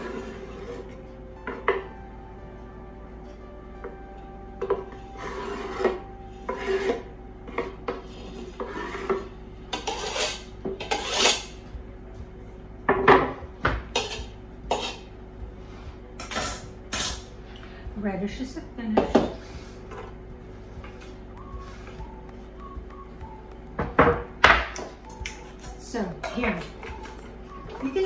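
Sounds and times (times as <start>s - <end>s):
knife scraping wooden cutting board: 8.2s - 11.5s.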